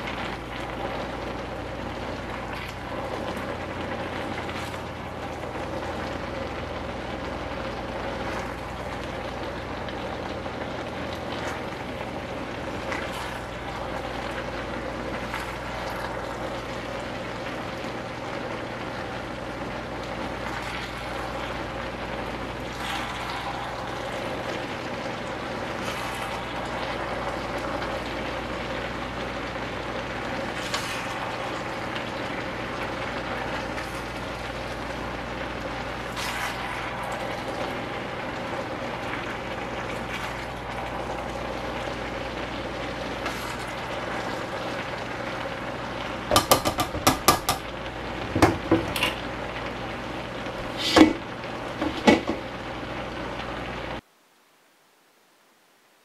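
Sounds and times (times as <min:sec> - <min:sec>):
food sizzling in a wok: 0:00.0 - 0:54.0
utensils clacking against wok: 0:46.3 - 0:47.6.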